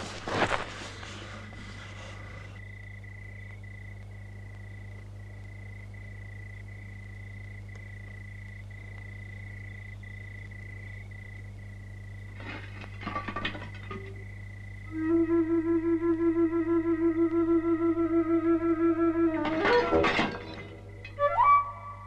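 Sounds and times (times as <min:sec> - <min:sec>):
rustling: 0:00.0 - 0:02.7, 0:12.3 - 0:14.2
low steady hum: 0:00.0 - 0:22.0.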